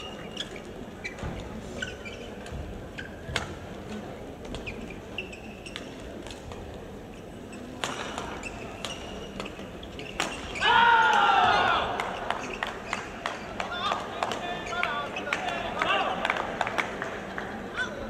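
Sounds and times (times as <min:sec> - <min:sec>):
shoes squeaking on court: 0:00.0 - 0:03.6, 0:04.4 - 0:10.7, 0:12.1 - 0:13.6
rackets hitting shuttlecock: 0:07.8 - 0:11.2.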